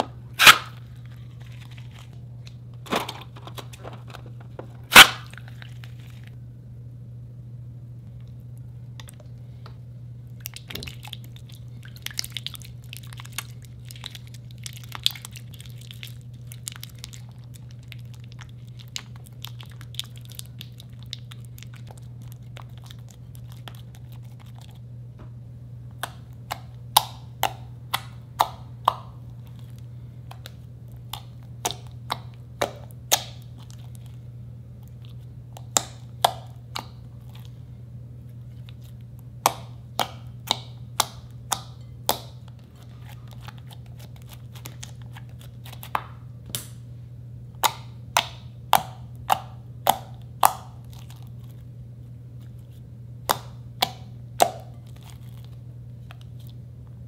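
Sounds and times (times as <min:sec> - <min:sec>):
steady low hum: 0:00.0 - 0:57.0
slime crackling and popping: 0:10.4 - 0:24.8, 0:26.0 - 0:34.2, 0:38.6 - 0:46.8, 0:47.6 - 0:51.7.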